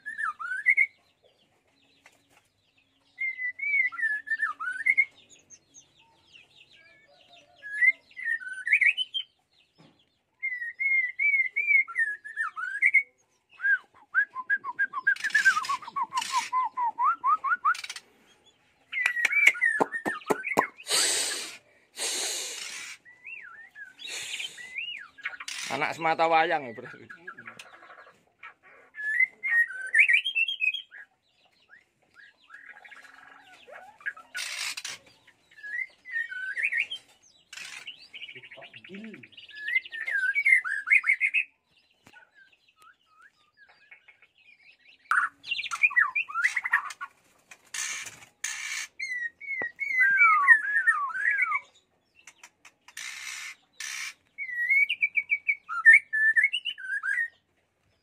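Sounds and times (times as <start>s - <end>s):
bird singing whistled notes: 0.0s - 1.0s, 3.1s - 5.6s, 7.6s - 9.3s, 10.4s - 18.0s, 23.1s - 25.9s, 29.0s - 31.1s, 35.5s - 37.1s, 38.1s - 41.6s, 42.2s - 46.9s, 49.0s - 51.8s, 54.4s - 57.4s.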